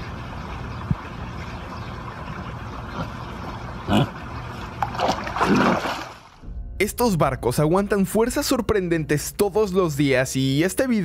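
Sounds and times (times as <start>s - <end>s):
steady low hum: 0.0s - 5.0s, 6.3s - 10.2s
dog splashing in pool water: 4.4s - 6.4s.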